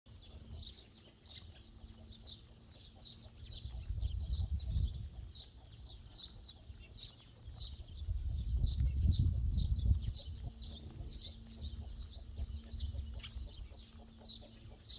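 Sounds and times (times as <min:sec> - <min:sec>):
sparrows chirping: 0:00.1 - 0:14.9
low rumble: 0:07.5 - 0:14.3.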